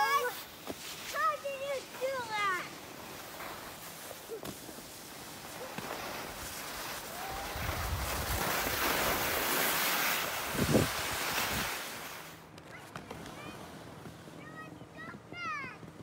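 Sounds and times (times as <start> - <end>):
skis scraping over snow: 0.0 - 16.0
wind buffeting microphone: 7.3 - 8.9, 10.4 - 11.8.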